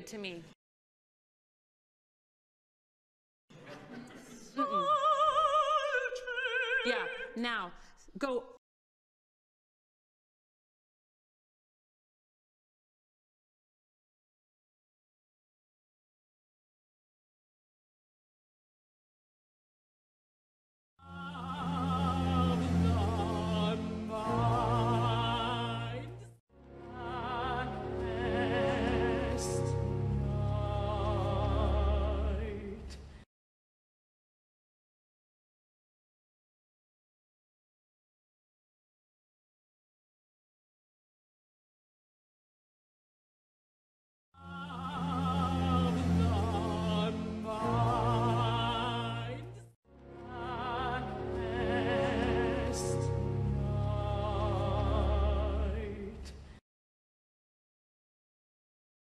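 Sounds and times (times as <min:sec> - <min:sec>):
woman singing operatically: 0:04.6 - 0:07.4, 0:21.0 - 0:26.3, 0:26.9 - 0:32.9, 0:44.4 - 0:49.6, 0:50.2 - 0:53.0, 0:53.6 - 0:56.2
orchestral accompaniment: 0:21.3 - 0:32.6, 0:44.6 - 0:56.0.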